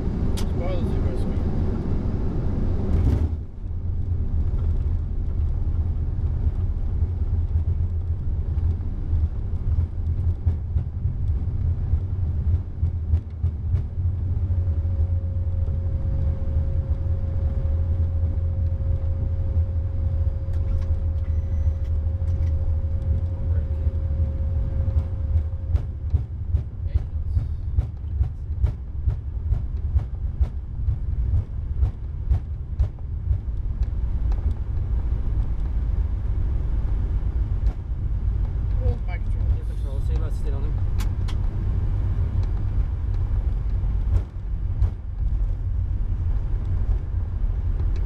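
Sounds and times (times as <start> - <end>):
deep aircraft rumble: 0.0 - 48.0
thin steady hum: 0.0 - 48.0.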